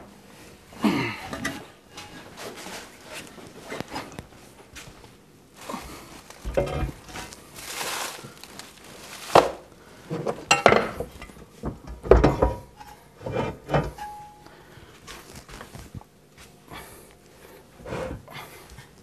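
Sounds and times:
metal parts clanking on wood: 6.4 - 7.2.

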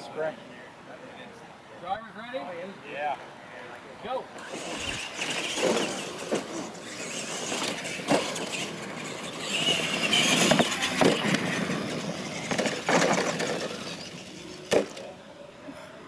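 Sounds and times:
toy truck motors whining: 4.4 - 15.2
tyres scrabbling through dirt: 4.4 - 15.2
trucks knocking on landing: 9.5 - 15.0.

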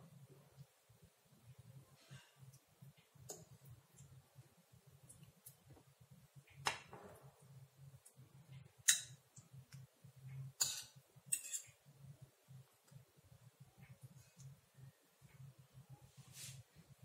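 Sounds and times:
faint low hum: 0.0 - 17.0
metal spoon clinking on glass: 10.6 - 11.8.

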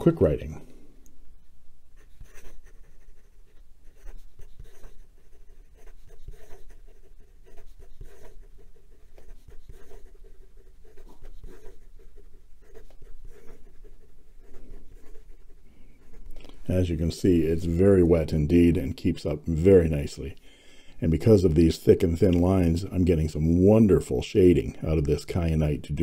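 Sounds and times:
pen nib scratching on paper: 2.0 - 16.6.

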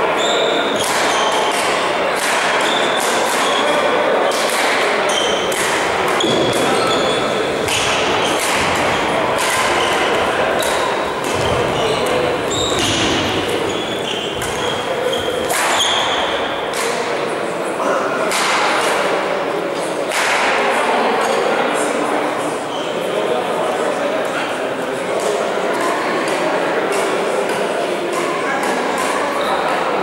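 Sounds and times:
shoes squeaking on court floor: 0.2 - 1.7, 5.0 - 16.7
rackets striking shuttlecock: 0.8 - 3.6, 4.3 - 6.8, 7.6 - 17.1.

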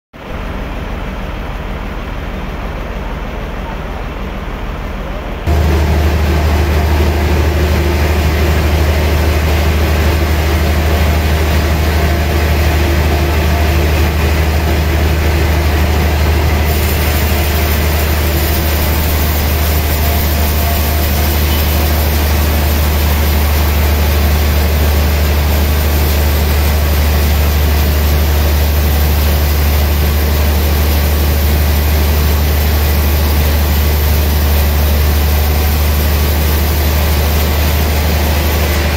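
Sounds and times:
band saw humming and hissing: 5.5 - 38.9.

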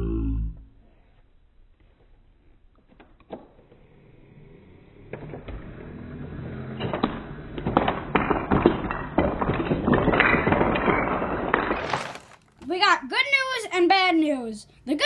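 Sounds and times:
low hum: 3.6 - 8.2
wooden blocks clattering onto floor: 5.1 - 12.8.

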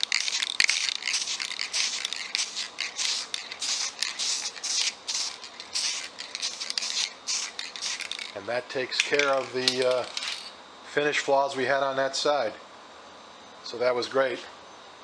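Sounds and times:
aerosol can spraying: 0.0 - 8.4.

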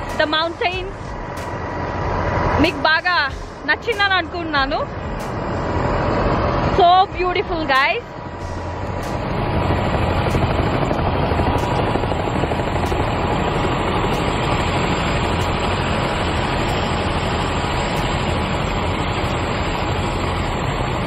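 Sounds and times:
strong wind on microphone: 4.7 - 21.0.

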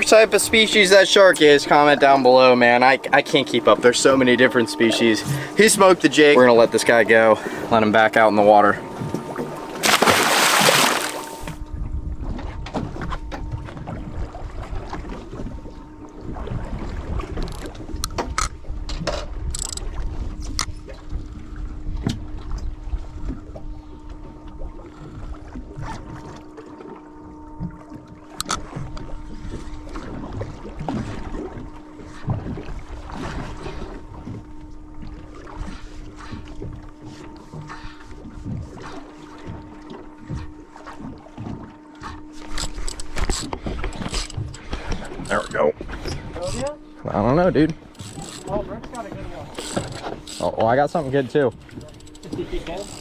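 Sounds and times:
steady low hum: 0.0 - 53.0
water churning against hull: 0.0 - 53.0
wind on microphone: 11.4 - 24.0
fishing reel clicking and knocking: 17.4 - 20.8, 42.4 - 45.6, 46.4 - 46.8, 47.8 - 53.0.

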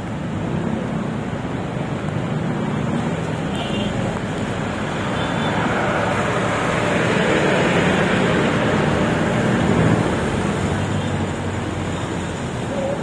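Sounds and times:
vehicle passing by: 4.6 - 12.4.

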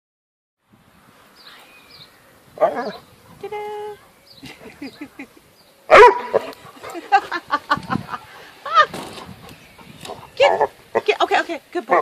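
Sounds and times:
dog barking and yelping: 2.6 - 3.4, 5.9 - 7.0.

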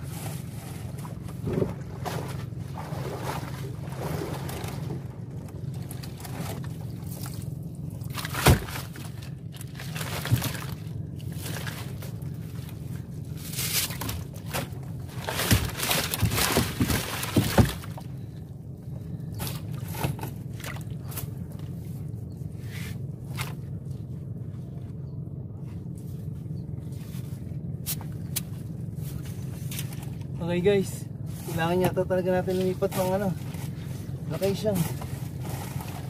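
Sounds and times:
wet netting rustling and scraping: 0.0 - 18.3, 25.6 - 30.3, 31.3 - 36.0
steady low hum: 0.0 - 36.0.

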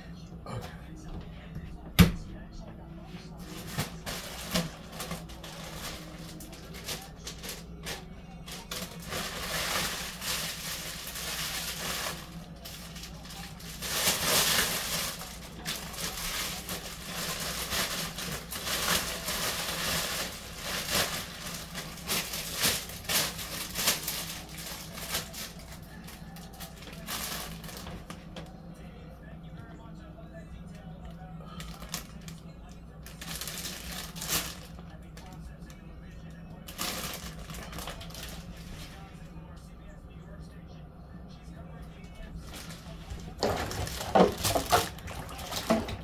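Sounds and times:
steady low hum: 0.0 - 46.0
plastic bag crinkling: 3.3 - 28.4, 31.5 - 32.4, 33.0 - 35.8, 36.6 - 39.1, 42.1 - 46.0.

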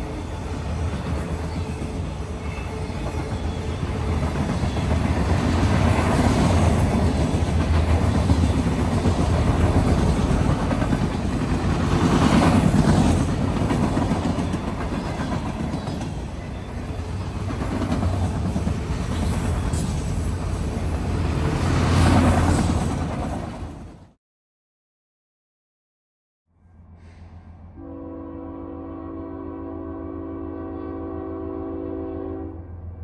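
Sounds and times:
train wheels rumbling on rail: 0.0 - 24.2.

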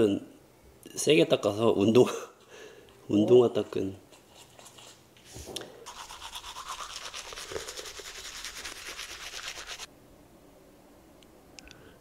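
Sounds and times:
toothbrush scrubbing teeth: 4.2 - 5.0, 5.9 - 9.9.

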